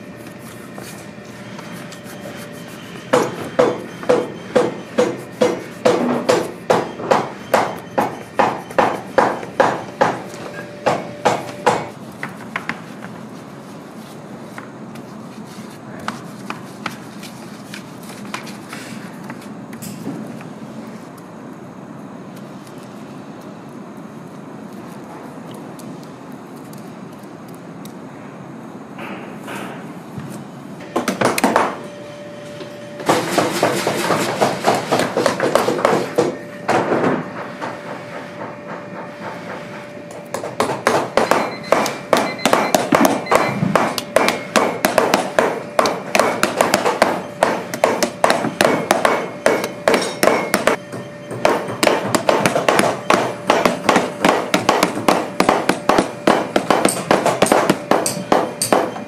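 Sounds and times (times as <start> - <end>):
hammer tapping leather: 51.4 - 58.9.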